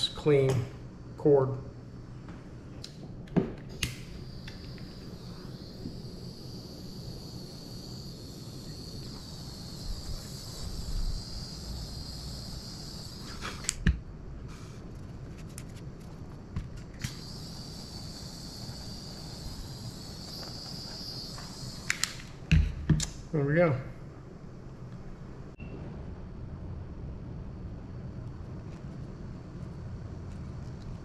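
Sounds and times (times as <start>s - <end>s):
heat gun fan whining: 0.0s - 14.1s, 15.4s - 24.1s.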